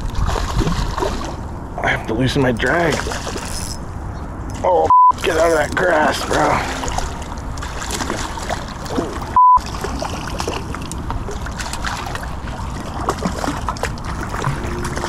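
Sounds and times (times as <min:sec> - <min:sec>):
water splashing and sloshing: 0:00.0 - 0:15.0
steady bleep tone: 0:04.9 - 0:05.2, 0:09.4 - 0:09.6.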